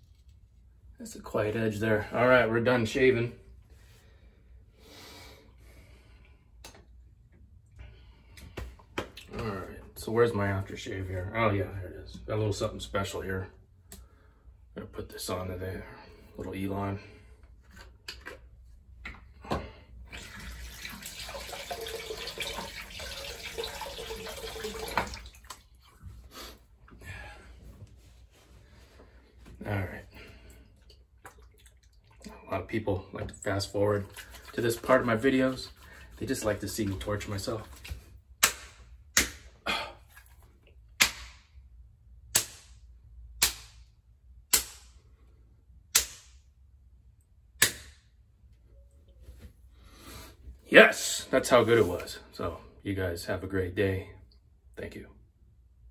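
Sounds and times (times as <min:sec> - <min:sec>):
tap water splashing into sink: 0:19.5 - 0:25.7
hand slapping bare skin: 0:38.4 - 0:39.6, 0:41.0 - 0:41.5, 0:42.3 - 0:43.9, 0:44.5 - 0:45.0, 0:45.9 - 0:46.4, 0:47.6 - 0:48.0.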